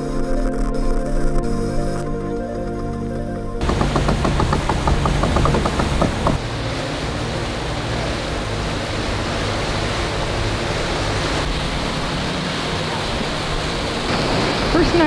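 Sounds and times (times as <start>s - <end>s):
wind and water rushing: 3.6s - 15.0s.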